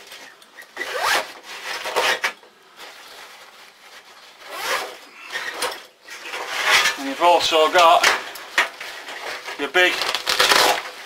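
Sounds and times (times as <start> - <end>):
backpack zip being drawn: 0.8 - 1.3, 4.4 - 5.0
fabric rubbing: 2.8 - 5.3, 9.1 - 11.0.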